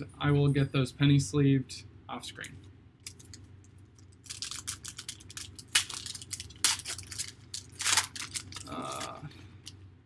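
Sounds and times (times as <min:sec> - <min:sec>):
foil wrapper crinkling and tearing: 0:03.0 - 0:09.7.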